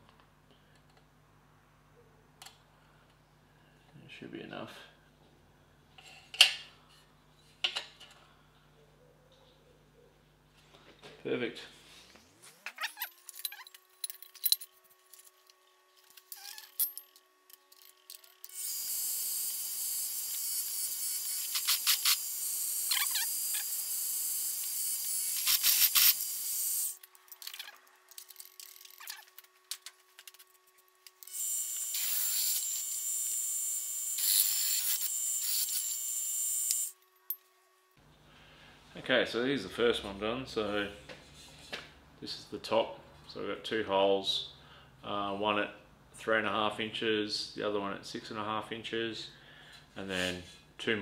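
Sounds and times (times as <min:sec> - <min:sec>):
drill squealing through steel: 0:18.5 - 0:27.0, 0:31.3 - 0:32.9
drill motor running: 0:31.2 - 0:36.9.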